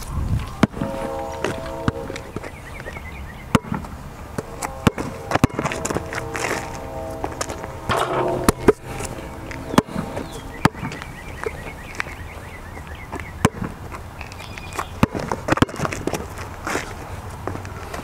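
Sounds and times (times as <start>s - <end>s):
basketball bouncing on asphalt: 3.5s - 3.9s, 13.1s - 13.8s, 14.9s - 16.2s.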